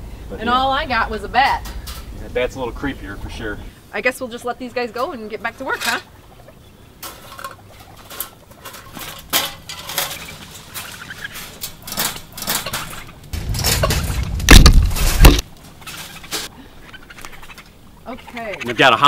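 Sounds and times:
wire cage traps rattling: 0:07.0 - 0:16.5
rumbling on covered microphone: 0:13.3 - 0:15.4.

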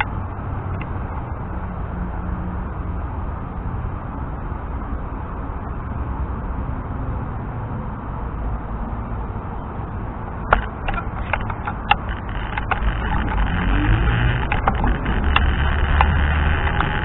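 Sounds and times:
sharp clicks and ticks: 0:00.0 - 0:01.0, 0:10.5 - 0:17.0
wind and road noise: 0:00.0 - 0:17.0.

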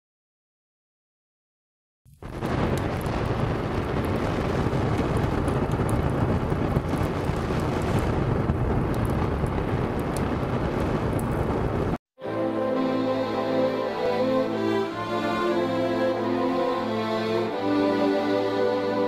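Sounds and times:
faint crackles: 0:02.1 - 0:12.0
rumbling rushing noise: 0:02.2 - 0:12.0.

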